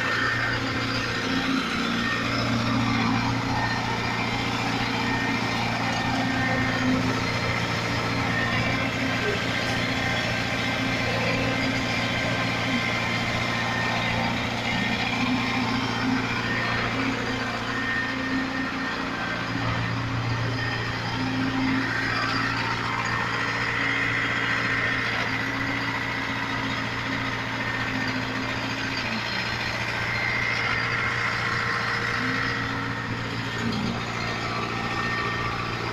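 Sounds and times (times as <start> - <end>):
diesel engines droning: 0.0 - 35.9.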